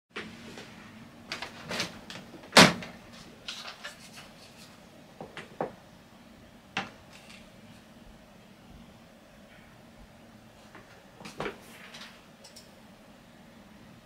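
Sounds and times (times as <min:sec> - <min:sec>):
faint steady hum: 0:00.2 - 0:14.0.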